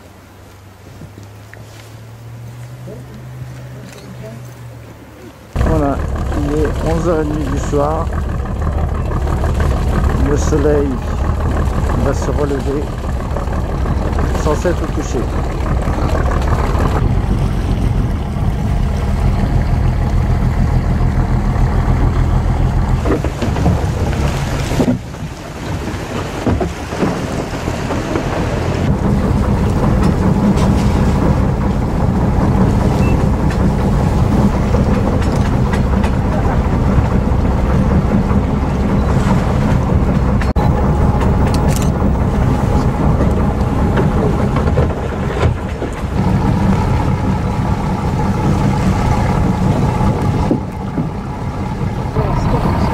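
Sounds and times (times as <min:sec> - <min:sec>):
boat engine droning: 0:00.0 - 0:52.9.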